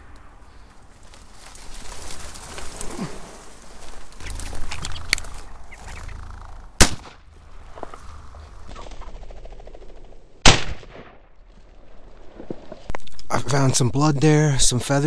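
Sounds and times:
shotgun shot: 6.8 - 7.2, 10.4 - 11.4.

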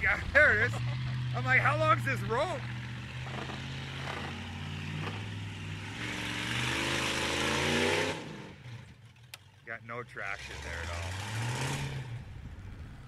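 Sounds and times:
car engine revving under load: 0.0 - 13.0
wheels spinning in wet grass: 3.2 - 4.4.

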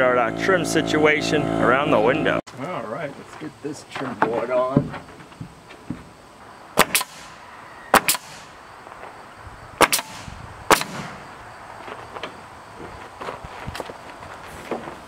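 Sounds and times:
nail gun firing: 6.8 - 8.5, 9.8 - 11.2.

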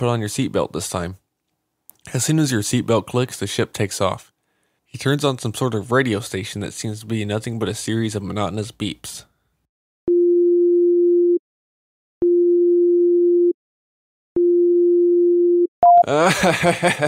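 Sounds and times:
short higher beep: 15.8 - 16.1.

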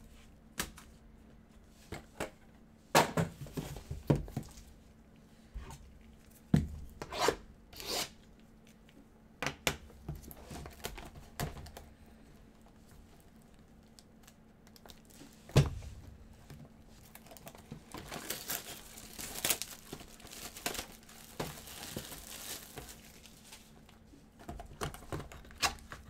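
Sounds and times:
packaging rustling and tearing: 13.2 - 15.4, 17.0 - 26.0.

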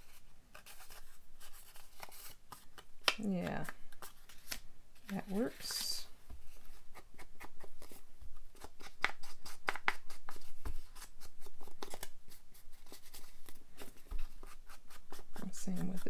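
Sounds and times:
foam tool scratching paper: 14.3 - 16.0.

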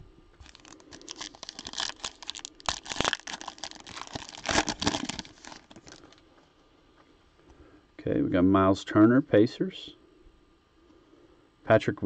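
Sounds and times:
foil wrapper crinkling and tearing: 0.4 - 6.2.

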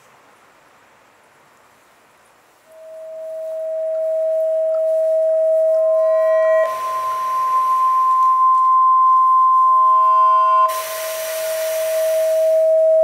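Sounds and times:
hiss of noise: 0.0 - 13.0
higher pure tone: 2.7 - 13.0
pure sine tone: 2.7 - 13.0.

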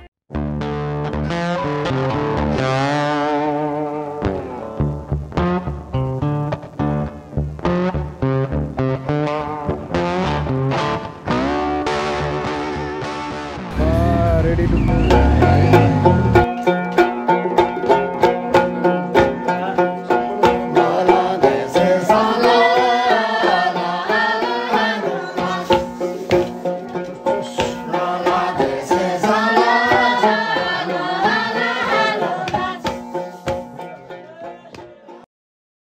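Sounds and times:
plucked strings: 0.3 - 35.2
wavering lead melody: 11.4 - 16.8
steady drum beat: 13.7 - 16.5.

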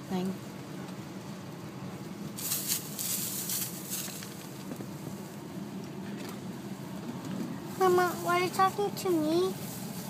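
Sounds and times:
rustling and crackling: 2.4 - 5.4.

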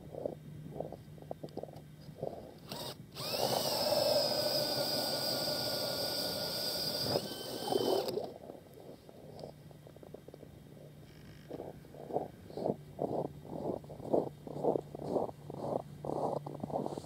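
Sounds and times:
power drill whine: 2.7 - 8.2.

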